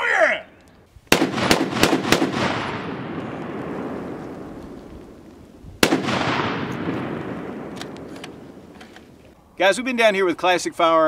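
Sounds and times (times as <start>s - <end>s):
rifle shots with echo: 1.1s - 9.2s.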